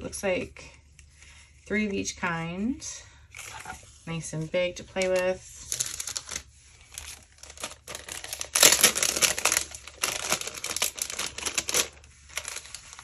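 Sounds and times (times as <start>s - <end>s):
plastic packaging crinkling: 5.0s - 13.0s.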